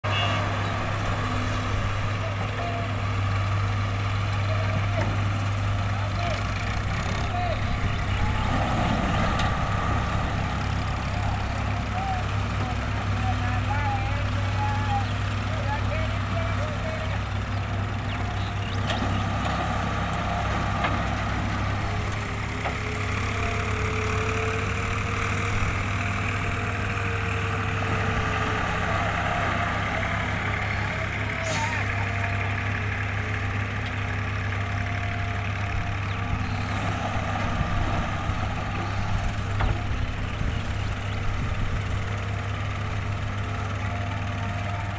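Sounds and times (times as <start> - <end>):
diesel engines droning: 0.0 - 44.9.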